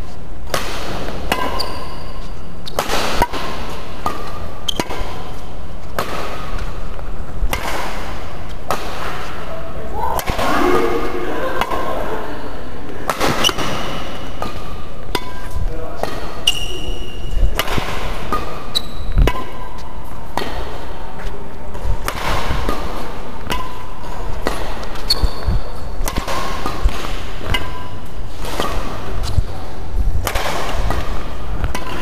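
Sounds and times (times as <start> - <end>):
sneaker squeaks: 1.3 - 2.8, 4.1 - 5.5, 13.3 - 14.1, 16.4 - 17.4, 18.4 - 19.9, 25.0 - 25.9
rackets striking shuttlecock: 2.6 - 6.7, 7.4 - 9.3, 10.2 - 10.4, 13.1 - 16.7, 17.5 - 19.7, 22.0 - 25.1, 26.0 - 29.4, 30.2 - 32.0.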